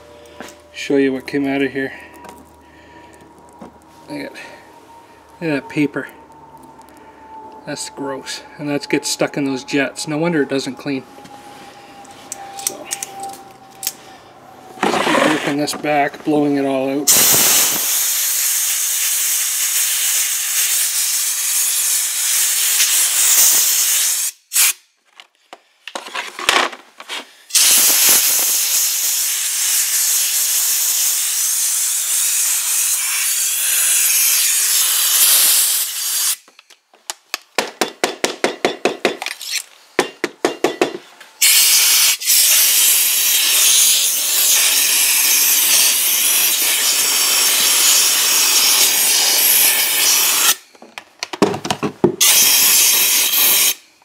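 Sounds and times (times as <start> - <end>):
compressed air blow gun hissing: 17.1 - 24.7, 27.5 - 36.4, 41.4 - 50.6, 52.2 - 53.8.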